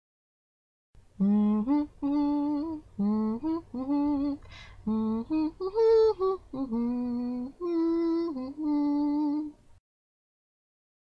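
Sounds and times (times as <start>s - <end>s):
person humming: 1.2s - 9.6s
quick breath: 4.4s - 4.8s.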